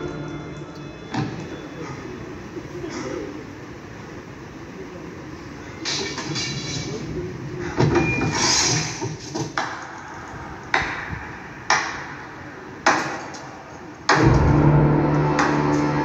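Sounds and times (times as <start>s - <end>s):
low background noise: 0.0s - 16.0s
sharp impact hits with ringing tail: 14.2s - 16.0s.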